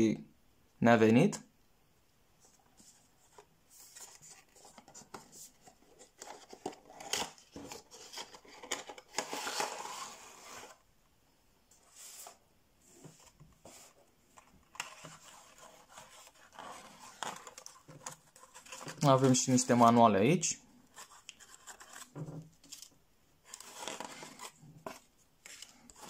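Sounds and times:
packaging sliding and scraping: 0:02.8 - 0:10.8, 0:22.7 - 0:26.0.

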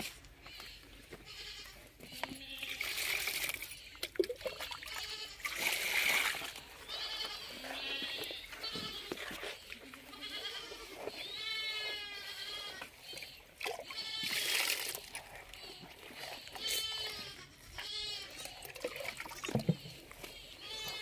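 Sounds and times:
animal bleating: 0:00.4 - 0:03.1, 0:03.7 - 0:05.6, 0:06.6 - 0:18.7, 0:19.6 - 0:21.0
wet feed splashing in a tub: 0:02.6 - 0:11.4, 0:12.4 - 0:17.1, 0:18.4 - 0:21.0.

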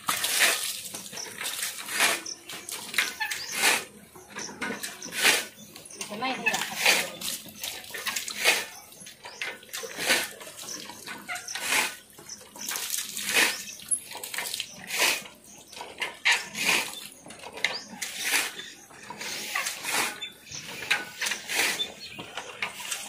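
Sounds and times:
water splashing: 0:06.1 - 0:17.2.

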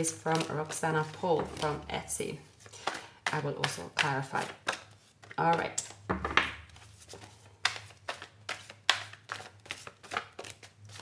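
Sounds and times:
cards shuffled by hand: 0:00.0 - 0:06.0, 0:06.6 - 0:11.0.

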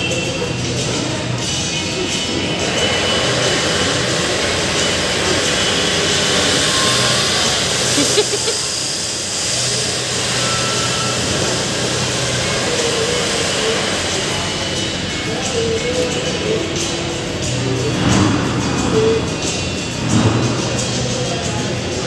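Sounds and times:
loud steady rushing noise: 0:00.0 - 0:22.0.

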